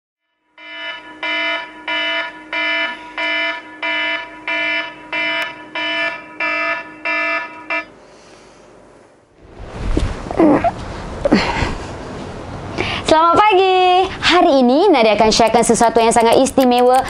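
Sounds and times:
electronic alarm beeping: 0:00.5 - 0:08.0.

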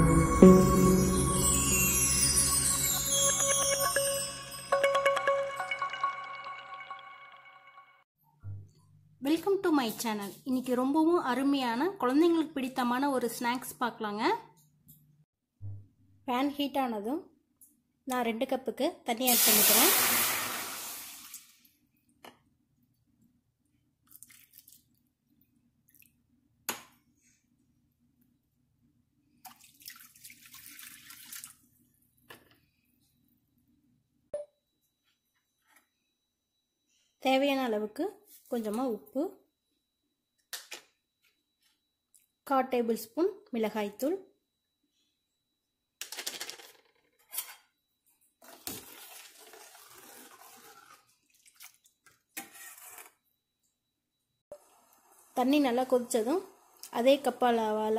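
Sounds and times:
water pouring into hot frying pan: 0:19.3 - 0:21.6, 0:48.7 - 0:51.8
metal ladle scraping pan: 0:52.4 - 0:53.2.

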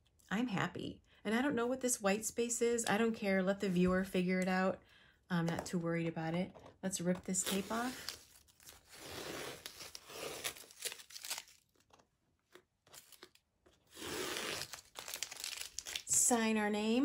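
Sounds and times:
tape ripping off paper: 0:07.4 - 0:12.0, 0:12.9 - 0:16.1.

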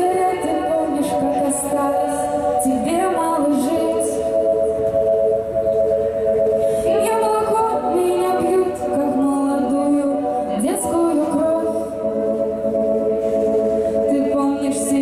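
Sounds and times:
woman singing melody: 0:00.0 - 0:04.3, 0:06.9 - 0:12.1, 0:14.1 - 0:15.0
female voices holding chord: 0:00.0 - 0:04.6, 0:06.8 - 0:12.4.

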